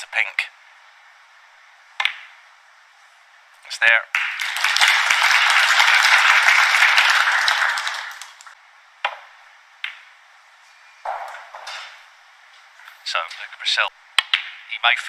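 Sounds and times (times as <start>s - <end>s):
snooker balls clicking: 2.0s - 2.4s, 8.2s - 10.2s, 14.2s - 14.6s
audience applauding: 4.2s - 8.6s.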